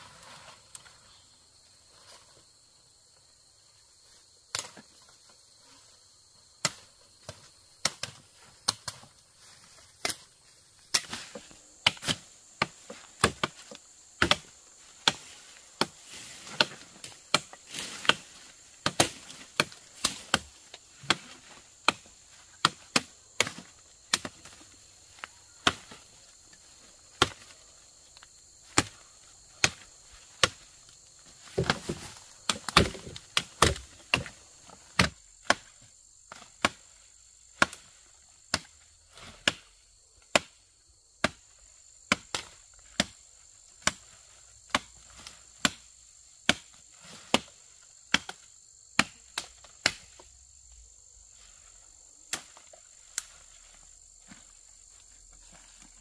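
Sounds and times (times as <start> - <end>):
high insect drone: 0.0 - 56.0
machete chopping dry branches: 6.6 - 26.5, 27.1 - 37.0, 37.6 - 40.6, 41.2 - 50.2, 52.3 - 53.5.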